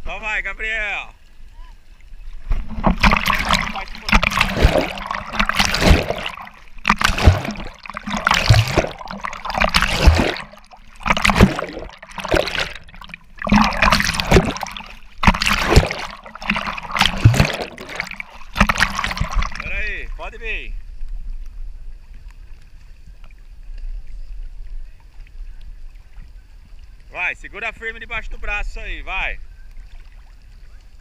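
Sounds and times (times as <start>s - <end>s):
water splashing and sloshing: 1.2s - 21.3s, 29.6s - 31.0s.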